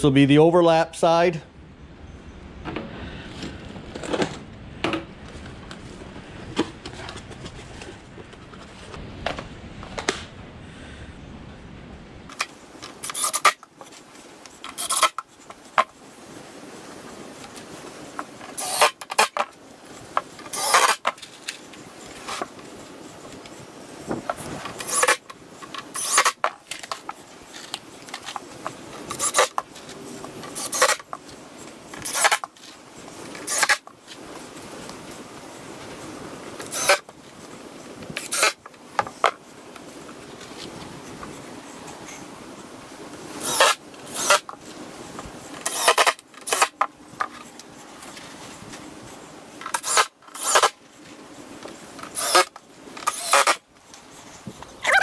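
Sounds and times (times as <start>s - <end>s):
impact driver driving screws: 12.3s - 13.6s, 14.7s - 15.2s, 18.6s - 19.4s, 20.4s - 21.1s, 24.8s - 25.2s, 26.0s - 27.0s, 29.1s - 29.6s, 30.5s - 31.1s, 32.0s - 32.5s, 33.4s - 33.9s, 36.6s - 37.0s, 38.2s - 38.6s, 43.4s - 44.5s, 45.6s - 46.8s, 49.7s - 50.8s, 52.0s - 53.6s.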